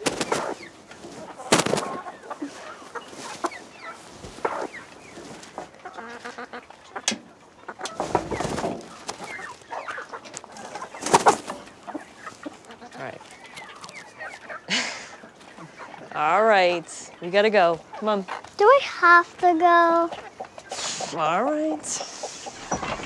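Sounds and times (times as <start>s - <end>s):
hen clucking: 0.0s - 23.0s
rustles and knocks: 7.8s - 9.0s, 22.4s - 23.0s.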